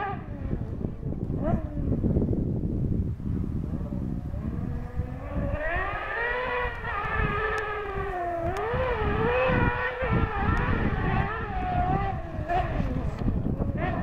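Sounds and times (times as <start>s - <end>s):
car engine revving hard: 4.2s - 14.0s.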